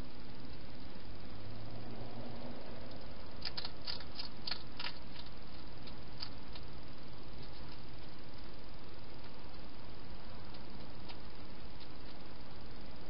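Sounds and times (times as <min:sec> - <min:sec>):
steady hiss: 0:00.0 - 0:13.0
hedgehog chewing clicks: 0:02.9 - 0:06.7, 0:10.5 - 0:12.2.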